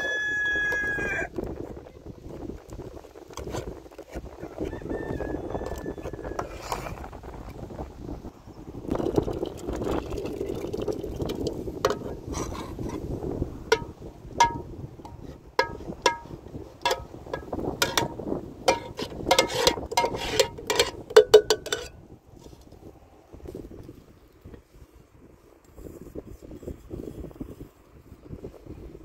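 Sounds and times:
liquid pouring into metal pitcher: 0:08.9 - 0:12.1
metal spoon scraping a pot: 0:11.9 - 0:13.1, 0:13.7 - 0:22.0.

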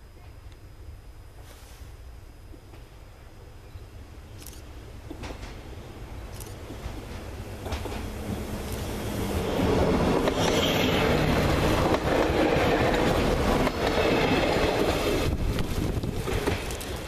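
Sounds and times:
train engine running: 0:01.4 - 0:17.0
wheels rumbling on rails: 0:06.5 - 0:17.0
wheels clicking over rail joints: 0:11.8 - 0:17.0.

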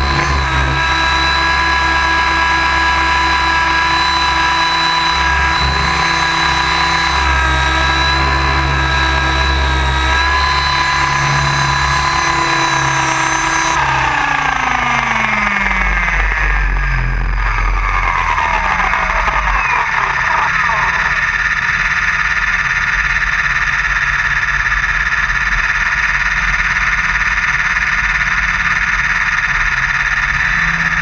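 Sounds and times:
motor and gear whine: 0:00.0 - 0:24.4
rotor and wind rumble: 0:00.0 - 0:31.0.

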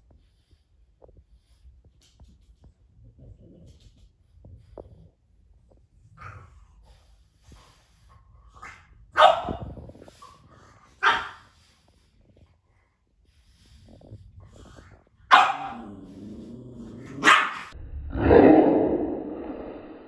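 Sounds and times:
dog barking sharply: 0:15.3 - 0:15.8, 0:17.2 - 0:17.7.

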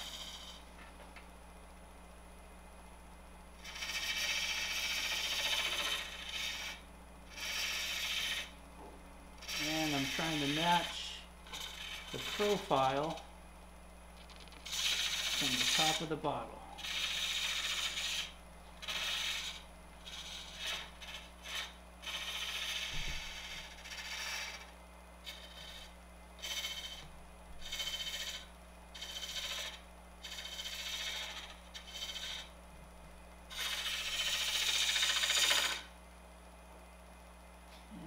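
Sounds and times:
scraper cutting spinning wood: 0:00.0 - 0:00.7, 0:03.6 - 0:08.6, 0:09.4 - 0:13.3, 0:14.2 - 0:32.6, 0:33.5 - 0:35.9
lathe motor humming: 0:07.4 - 0:13.3, 0:14.2 - 0:21.6.

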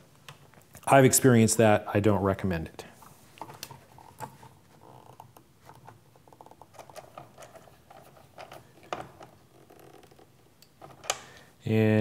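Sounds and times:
wires being handled: 0:03.0 - 0:11.5
nut driver clicks and scrapes: 0:03.4 - 0:11.2.

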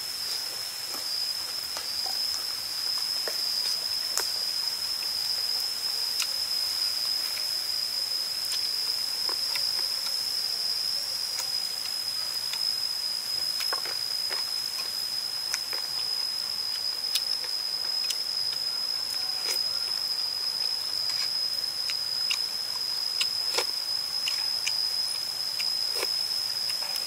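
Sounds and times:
high-pitched insect drone: 0:00.0 - 0:27.0
chewing food: 0:13.4 - 0:16.1, 0:16.7 - 0:20.0, 0:20.6 - 0:27.0.

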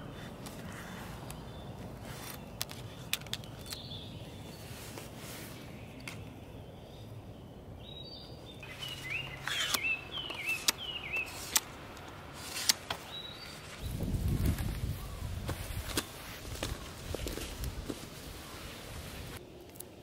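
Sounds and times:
bird chirping: 0:00.0 - 0:11.6, 0:13.0 - 0:14.1.

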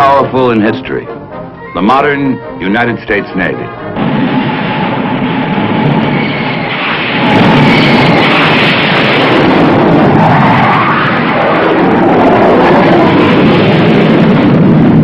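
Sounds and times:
loud mechanical roar: 0:04.0 - 0:15.0.

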